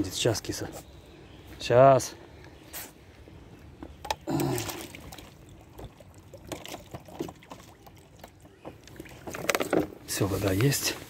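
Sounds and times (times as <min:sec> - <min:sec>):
water splashes: 0:04.1 - 0:09.9.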